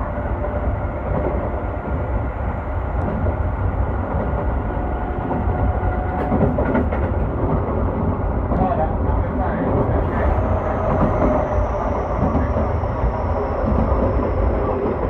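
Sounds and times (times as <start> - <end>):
train wheels rumbling on rail: 0.0 - 15.0
faint steady whine: 9.9 - 15.0.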